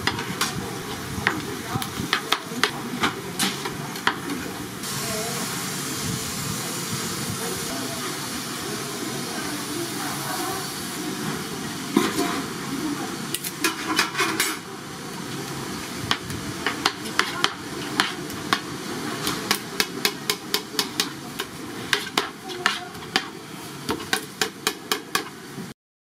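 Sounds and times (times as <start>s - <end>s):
steady hiss: 4.7s - 11.7s.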